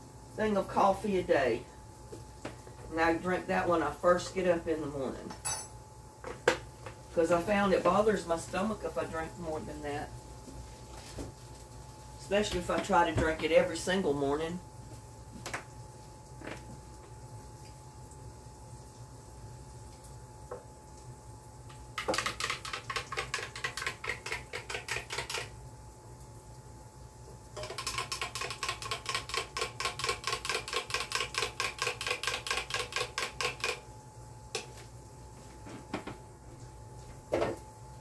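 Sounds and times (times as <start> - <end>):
spoon clinking in glass jar: 5.3 - 5.8, 27.6 - 28.2.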